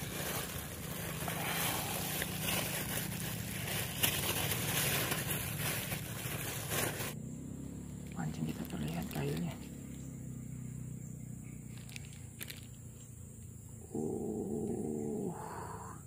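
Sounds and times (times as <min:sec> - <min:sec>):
plastic bag rustling: 0:00.0 - 0:07.2, 0:11.7 - 0:12.7.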